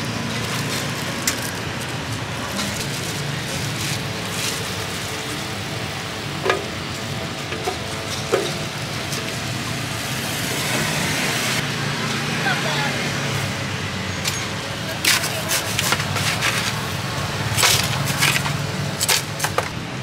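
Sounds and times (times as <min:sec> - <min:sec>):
street noise hiss and hum: 0:00.0 - 0:20.0.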